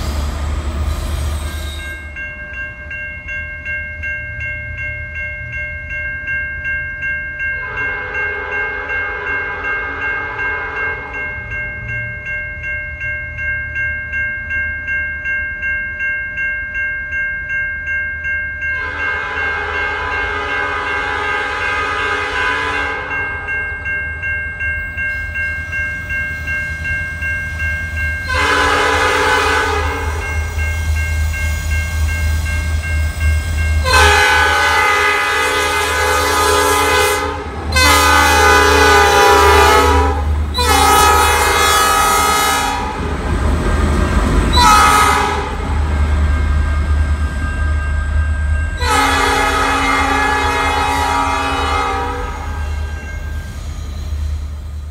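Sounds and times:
crossing bell ringing: 0.0 - 54.9
train air horn blasts: 7.6 - 11.2, 18.8 - 23.2, 28.3 - 30.3, 33.8 - 43.0, 44.5 - 45.6, 48.8 - 53.1.

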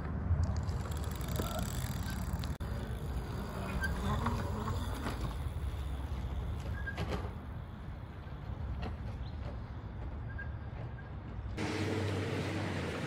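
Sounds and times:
bicycles rolling on dirt: 0.4 - 13.0.

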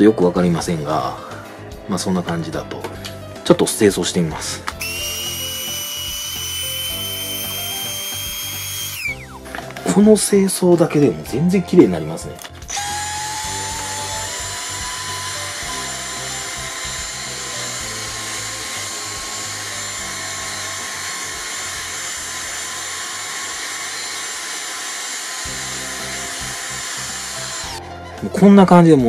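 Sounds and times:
vacuum cleaner whining: 4.8 - 9.8, 12.6 - 28.1.

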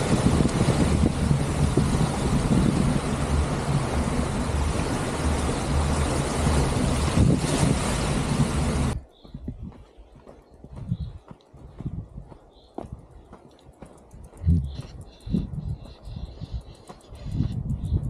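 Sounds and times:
surf: 0.0 - 9.0
wind rumble on microphone: 0.0 - 18.0
faint footsteps: 8.9 - 18.0.

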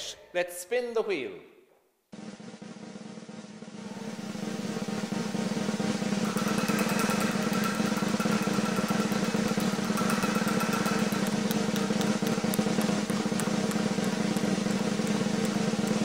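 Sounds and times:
snare drum roll: 2.2 - 16.0
rapid high ticks: 6.2 - 16.0.

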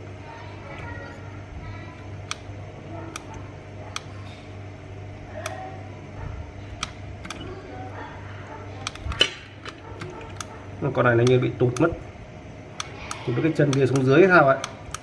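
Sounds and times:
steady low hum: 0.0 - 15.0
sharp clicks: 6.8 - 7.4, 12.8 - 15.0.

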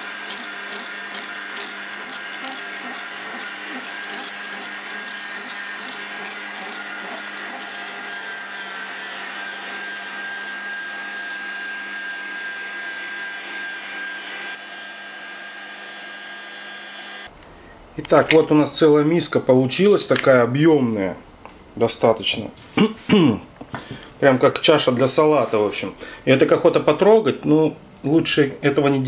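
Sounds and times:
electric meat grinder running: 0.0 - 17.3.

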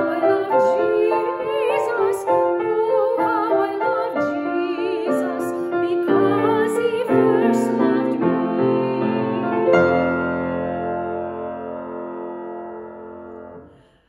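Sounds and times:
woman singing with vibrato: 0.0 - 9.7
piano: 0.0 - 14.0.

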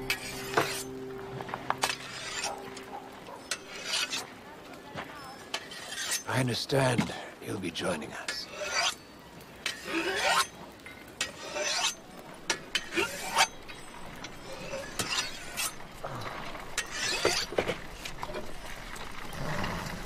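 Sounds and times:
blade rasping under a file: 3.5 - 4.3, 5.6 - 6.3, 8.4 - 9.0, 9.7 - 10.5, 11.2 - 12.0, 12.8 - 13.5, 14.6 - 15.8, 16.8 - 17.6.

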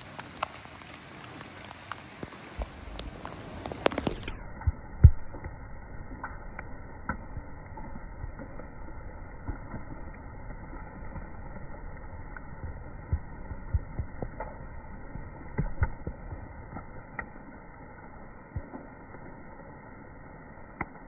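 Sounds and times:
low rushing noise: 2.4 - 9.6.

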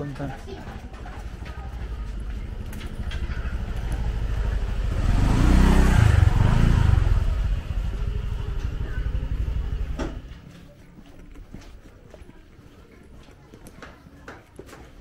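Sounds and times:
motorcycle engine passing: 0.7 - 10.5.

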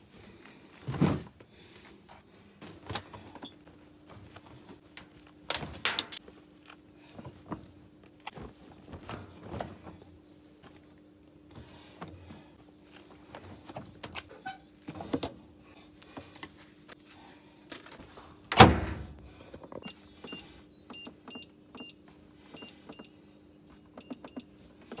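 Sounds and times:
clothes rustling: 0.0 - 14.4.

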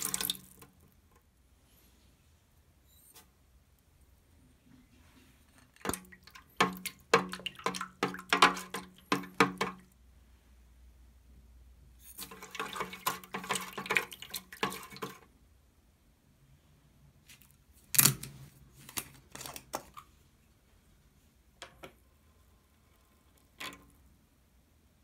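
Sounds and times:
utensil tapping plastic tub: 0.0 - 0.7, 5.8 - 9.9, 12.2 - 15.2
metal utensil stirring water: 0.0 - 0.9, 5.6 - 9.9, 12.1 - 15.3.

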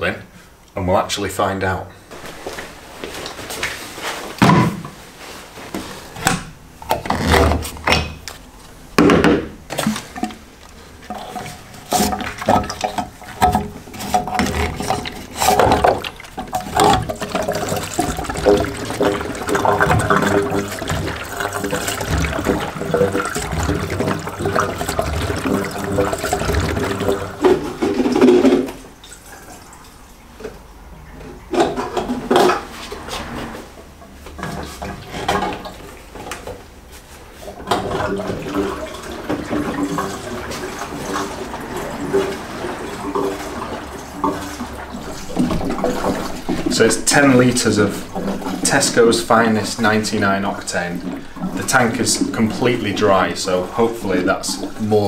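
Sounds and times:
petrol glugging into fuel tank: 5.8 - 29.7, 34.4 - 36.5, 37.4 - 55.0
plastic cans knocking: 9.0 - 28.8.

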